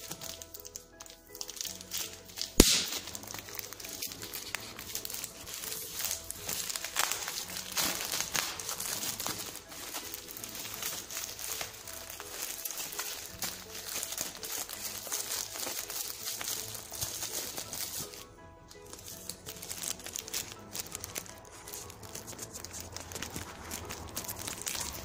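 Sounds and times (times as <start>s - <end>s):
plastic wrapping crinkling: 0.0s - 25.0s.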